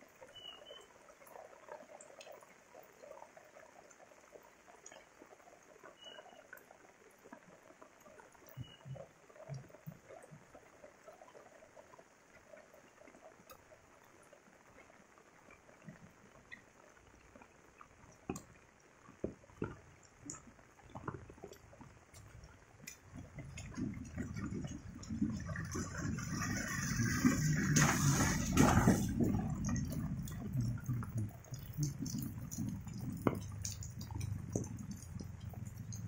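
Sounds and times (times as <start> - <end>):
light rain: 0.0 - 36.0
water trickling: 0.0 - 36.0
low rushing water: 12.2 - 36.0.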